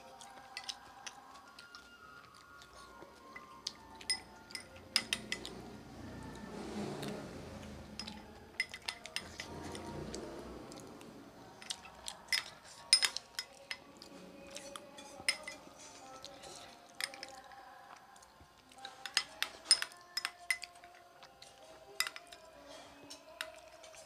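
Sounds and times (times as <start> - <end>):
spoon clinking against ceramic bowl: 0.4 - 1.8, 3.3 - 5.6, 8.0 - 9.8, 11.6 - 17.5, 18.8 - 24.0.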